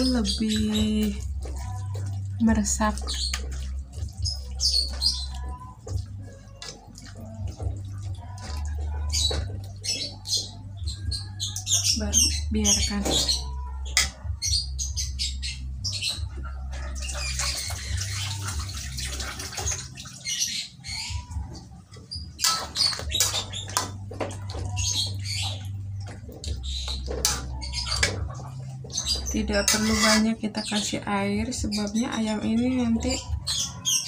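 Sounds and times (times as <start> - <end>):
birds chirping and squawking: 0.0 - 34.0
metal spatula scraping a wok: 22.4 - 23.8, 29.6 - 30.3.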